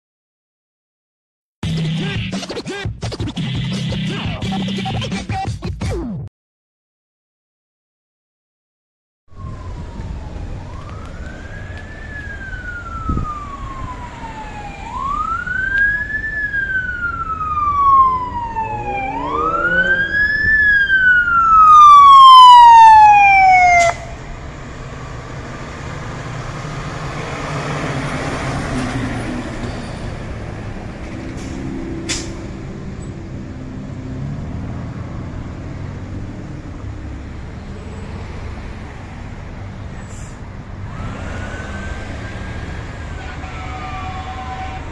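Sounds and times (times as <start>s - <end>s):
fire engine wail siren: 9.3s - 39.8s, 40.6s - 44.9s
traffic noise: 9.3s - 44.9s
vehicle passing: 9.4s - 44.9s.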